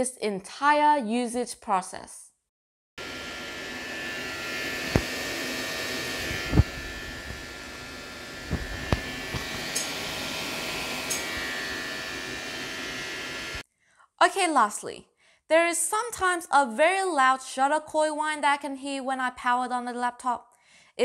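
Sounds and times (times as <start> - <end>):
laptop fans whirring: 3.0 - 13.6.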